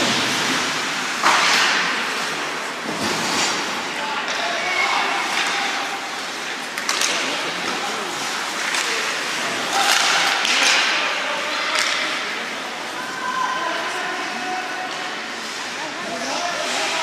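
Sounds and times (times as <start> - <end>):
hockey sticks and puck knocking: 0.0 - 2.0, 6.7 - 7.8, 8.5 - 12.3
arena crowd din: 0.0 - 17.0.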